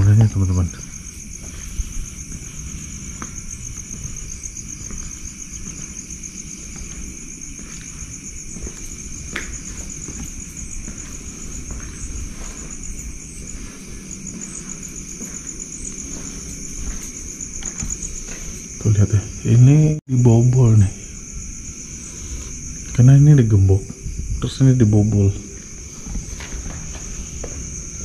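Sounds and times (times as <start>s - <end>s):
crickets trilling: 0.0s - 28.0s
low insect tone: 0.0s - 28.0s.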